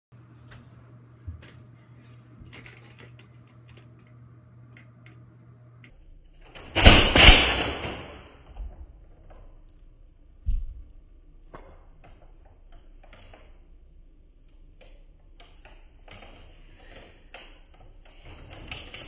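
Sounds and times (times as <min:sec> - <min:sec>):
toy blaster rattling burst: 0:06.4 - 0:08.5.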